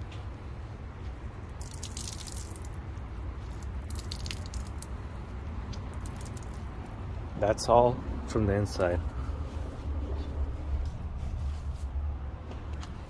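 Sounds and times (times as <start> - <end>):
water splashing onto concrete: 1.5 - 5.1, 5.7 - 6.9.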